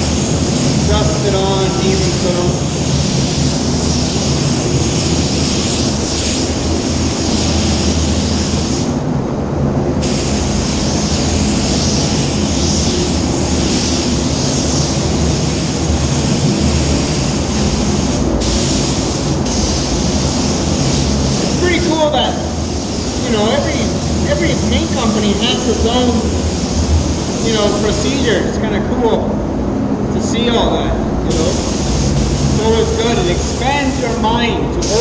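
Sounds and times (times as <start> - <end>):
spray hissing: 0.0 - 9.0, 10.0 - 28.5, 31.3 - 35.0
steady low rumble: 0.0 - 35.0.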